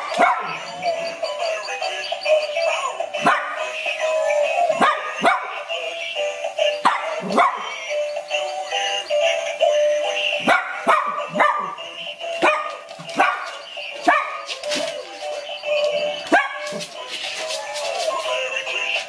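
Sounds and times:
dog barking: 0:00.2 - 0:00.6, 0:03.2 - 0:03.7, 0:04.8 - 0:05.6, 0:06.8 - 0:07.7, 0:10.4 - 0:11.8, 0:12.4 - 0:14.5, 0:16.3 - 0:16.8.

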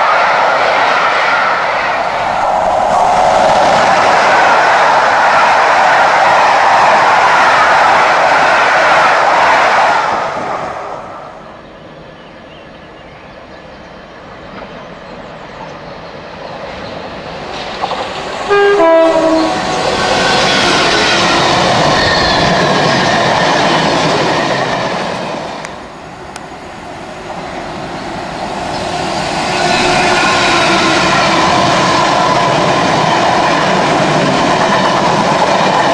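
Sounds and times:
freight train passing: 0:00.0 - 0:35.9
locomotive horn: 0:18.4 - 0:19.9.

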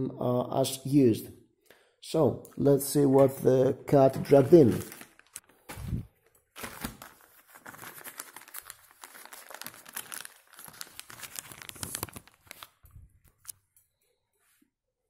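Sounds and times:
plastic bag crinkling: 0:04.3 - 0:13.6.

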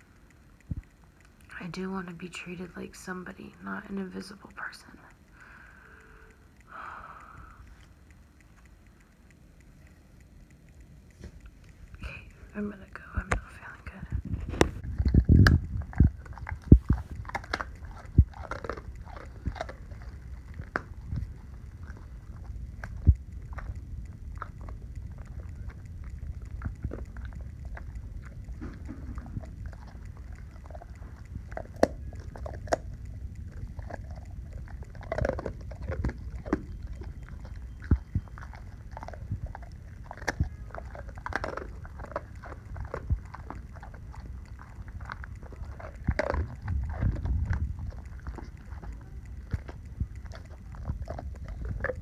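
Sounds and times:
dog crunching hard biscuit: 0:12.2 - 0:52.0.

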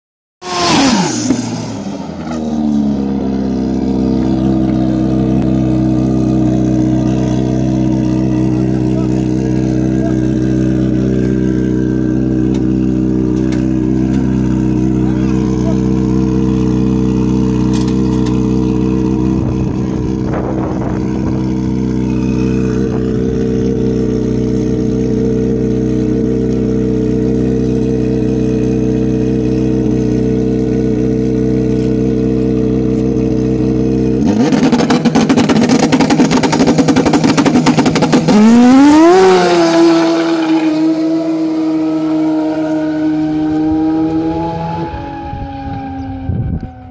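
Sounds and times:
snowmobile engine: 0:00.4 - 0:46.9.

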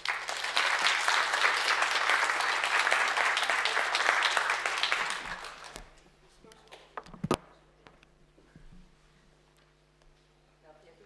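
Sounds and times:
audience applauding: 0:00.0 - 0:06.0.

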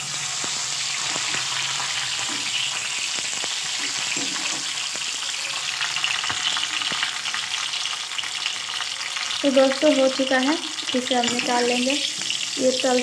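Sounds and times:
vegetables sizzling in oil: 0:00.0 - 0:13.0
metal spatula scraping and tapping: 0:11.2 - 0:11.6.

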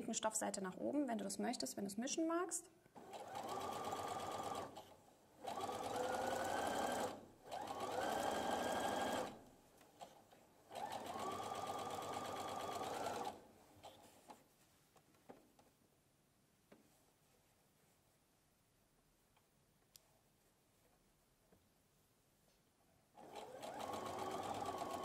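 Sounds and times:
sewing machine stitching: 0:03.0 - 0:09.4, 0:10.0 - 0:14.0, 0:23.2 - 0:25.0.

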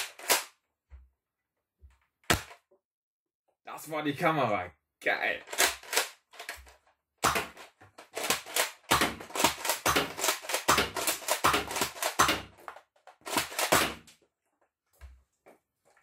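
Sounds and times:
toy blaster plastic snap: 0:02.3 - 0:02.6
plastic clicking and clattering: 0:05.4 - 0:14.3.

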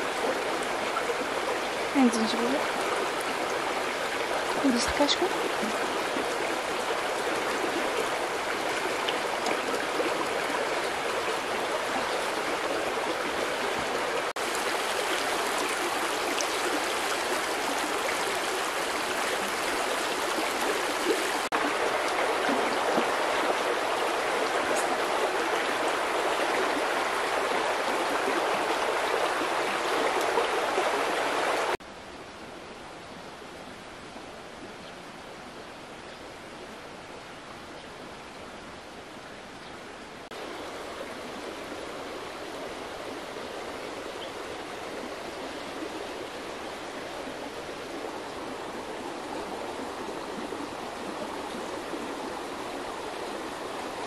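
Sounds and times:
stream flowing over rocks: 0:00.0 - 0:32.8, 0:33.4 - 0:54.0.

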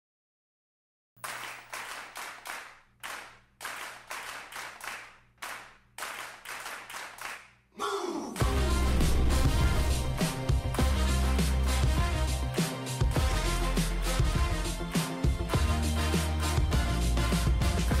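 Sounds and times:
hand claps with echo: 0:01.2 - 0:07.6
music: 0:08.4 - 0:18.0.

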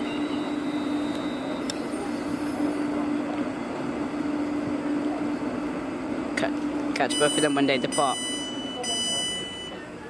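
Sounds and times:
train electrical hum: 0:00.0 - 0:10.0
high steady tone: 0:06.4 - 0:10.0.

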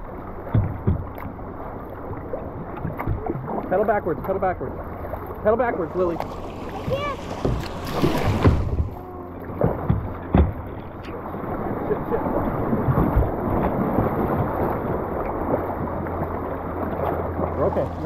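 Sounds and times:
water splashing on kayak hull: 0:00.0 - 0:18.0
river water rushing: 0:04.8 - 0:12.8.

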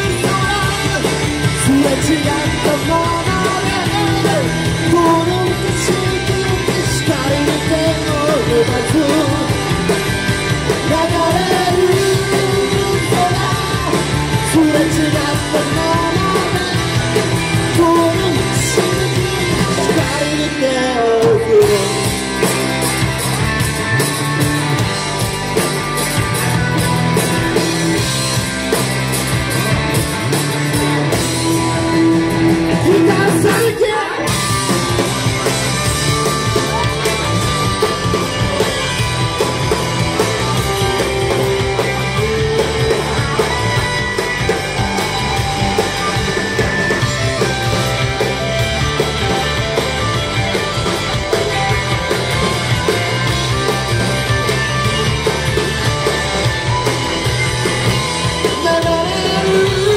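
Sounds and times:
person singing lead vocal: 0:00.0 - 0:22.3, 0:32.6 - 0:34.8, 0:58.4 - 0:59.9
bass guitar: 0:00.0 - 0:59.9
drum kit: 0:00.0 - 0:59.9
electric guitars: 0:00.0 - 0:59.9.

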